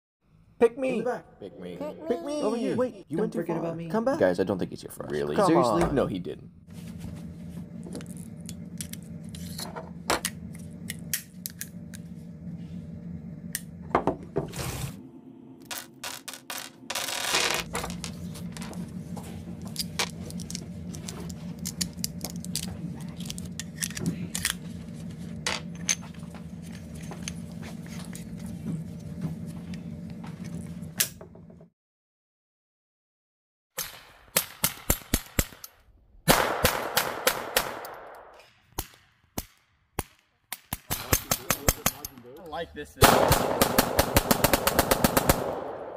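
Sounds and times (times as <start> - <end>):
steady low hum: 0.3 - 31.7, 40.9 - 45.9.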